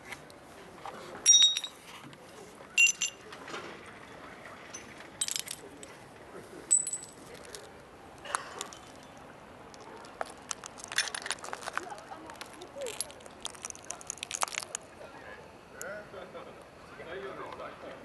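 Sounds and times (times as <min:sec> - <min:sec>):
glass bottles shattering on concrete: 0:01.3 - 0:01.8, 0:02.8 - 0:03.2, 0:04.7 - 0:05.7, 0:06.7 - 0:07.6, 0:08.5 - 0:09.2, 0:12.4 - 0:14.8.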